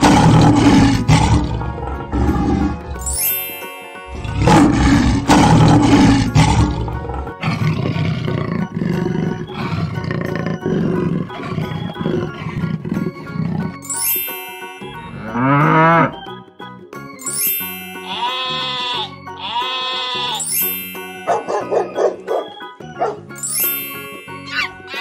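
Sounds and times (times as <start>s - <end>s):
big cats growling: 0.0s - 3.0s, 4.1s - 13.8s
cartoon lions roaring: 0.0s - 3.0s, 4.1s - 13.8s
children's music: 0.6s - 25.0s
cow mooing: 15.1s - 16.2s, 18.1s - 20.4s.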